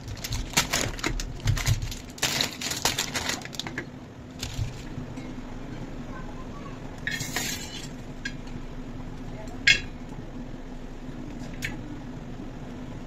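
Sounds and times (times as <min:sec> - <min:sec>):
utensils and dishes clinking: 0:07.0 - 0:08.5, 0:09.6 - 0:10.0.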